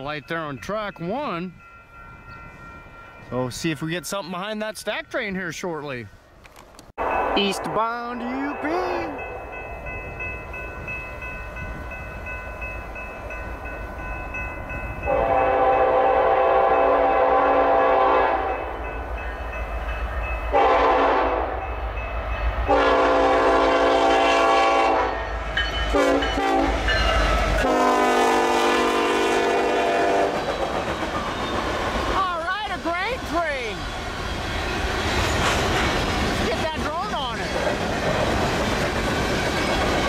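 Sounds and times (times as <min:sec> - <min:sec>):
diesel locomotive rumble: 0:07.0 - 0:40.0
train air horn blasts: 0:15.1 - 0:18.7, 0:20.5 - 0:21.6, 0:22.7 - 0:25.3, 0:25.9 - 0:26.9, 0:27.6 - 0:30.4.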